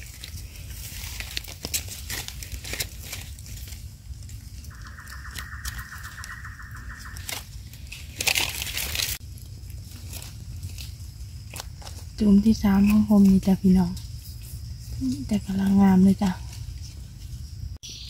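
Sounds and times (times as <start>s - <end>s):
loud rustle: 0.0s - 4.8s, 7.2s - 12.1s.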